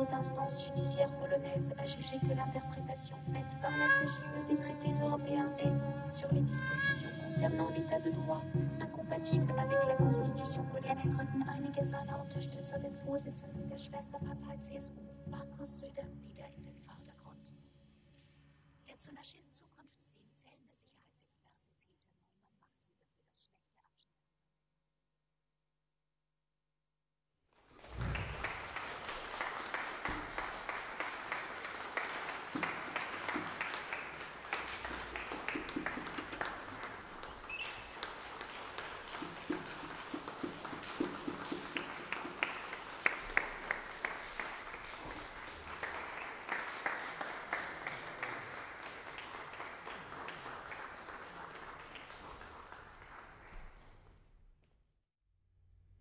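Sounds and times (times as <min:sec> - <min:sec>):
audience applauding: 0:27.7 - 0:53.9.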